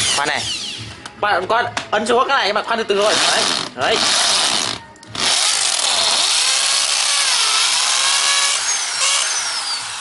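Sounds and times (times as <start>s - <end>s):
hammer drill drilling into concrete: 3.1s - 10.0s.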